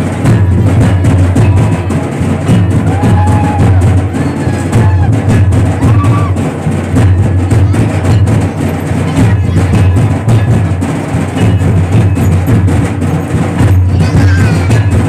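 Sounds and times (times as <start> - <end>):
drum-led music: 0.0 - 15.0.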